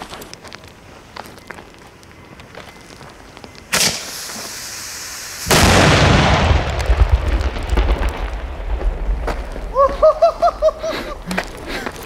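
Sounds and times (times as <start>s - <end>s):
fuse hissing: 3.7s - 5.6s
firework sharp crack: 3.7s - 9.7s
huge explosion blast: 5.5s - 9.8s
deep rumbling echo: 5.5s - 11.7s.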